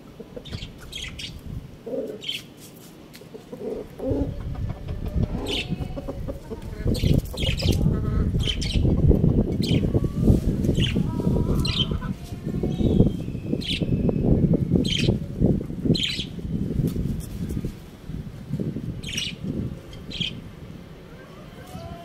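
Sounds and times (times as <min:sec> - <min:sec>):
small birds chirping: 0:00.2 - 0:17.7, 0:18.9 - 0:20.4
loud low rustling rumble: 0:03.8 - 0:21.0.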